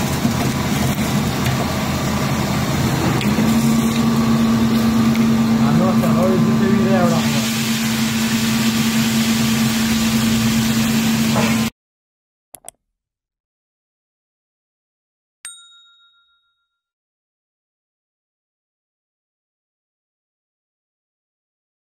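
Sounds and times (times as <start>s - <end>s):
bell ding: 15.5s - 16.9s.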